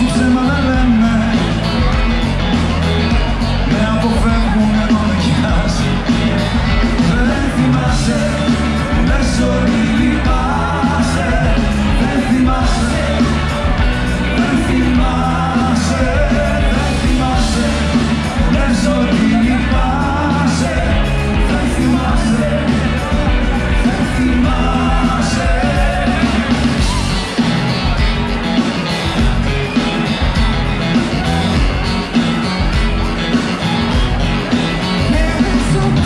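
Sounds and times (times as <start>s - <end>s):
man singing: 0.0s - 27.5s, 34.8s - 36.0s
live rock band playing: 0.0s - 36.0s.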